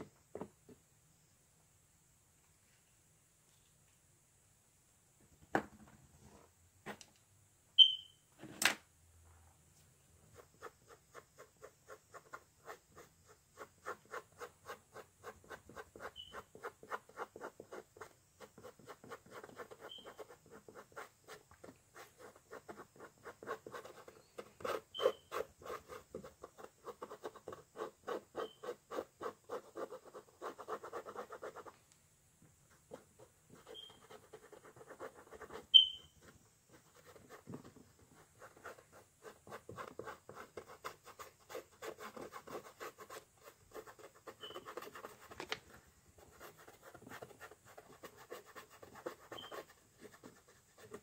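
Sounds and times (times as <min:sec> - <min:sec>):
brief high chirps: 0:07.8 - 0:08.2
paintbrush scrubbing on canvas: 0:46.3 - 0:51.0.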